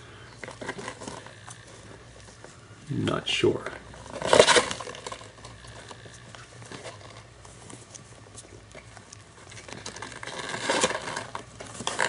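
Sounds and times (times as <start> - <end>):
kitten paws scratching cardboard: 4.0 - 12.0.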